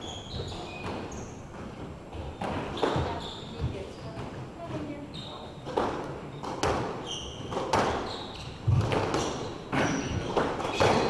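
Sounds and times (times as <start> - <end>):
sneakers squeaking on wooden floor: 0.0 - 11.0
squash ball knocking off rackets: 5.7 - 11.0.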